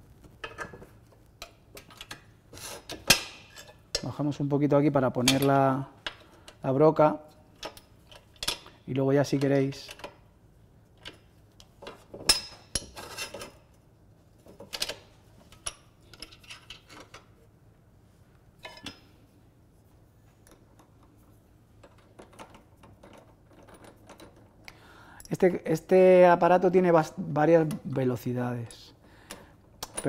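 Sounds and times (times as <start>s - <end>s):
metal clinks and knocks: 21.8s - 24.6s.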